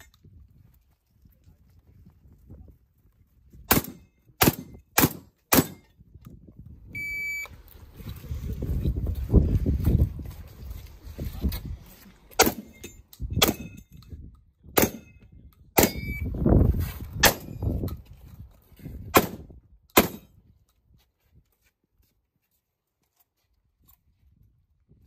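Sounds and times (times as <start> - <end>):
shotgun shots with echo: 3.7 - 5.8, 12.4 - 12.7, 14.8 - 15.1, 19.2 - 20.3.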